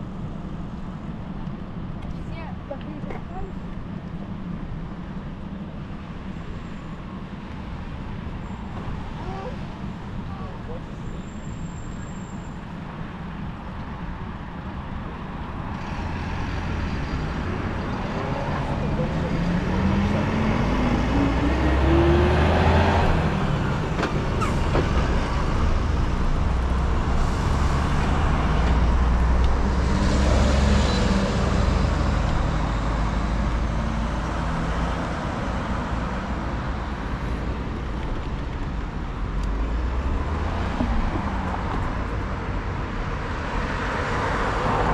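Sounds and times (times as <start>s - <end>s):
cars driving past: 14.8s - 44.9s
car engine accelerating: 15.7s - 37.6s.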